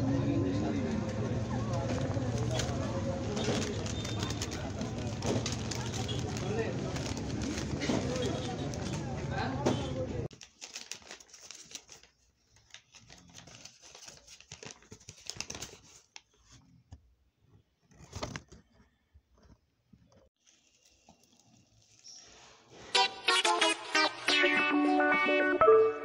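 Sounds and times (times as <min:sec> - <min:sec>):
paper and plastic wrapper crinkling: 0:00.9 - 0:16.6, 0:20.4 - 0:22.6.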